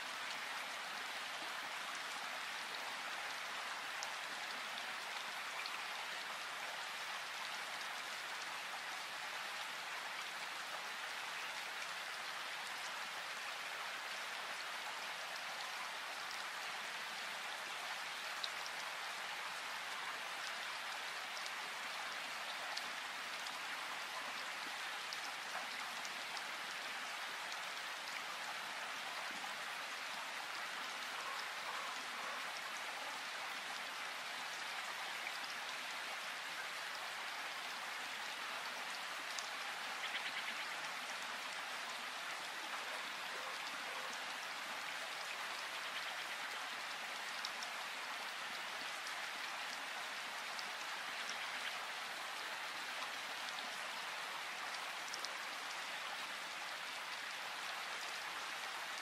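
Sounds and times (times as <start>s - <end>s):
steady rain hiss: 0.0s - 59.0s.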